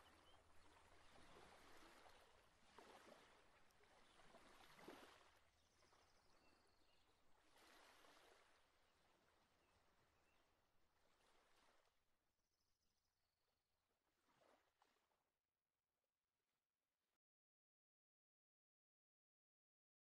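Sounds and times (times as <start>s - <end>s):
faint rushing water: 0.0s - 6.4s, 7.1s - 10.2s.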